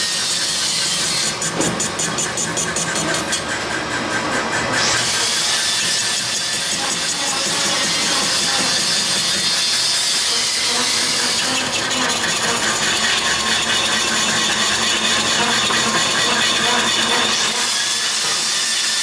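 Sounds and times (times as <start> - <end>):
metal lathe cutting: 0.0 - 19.0.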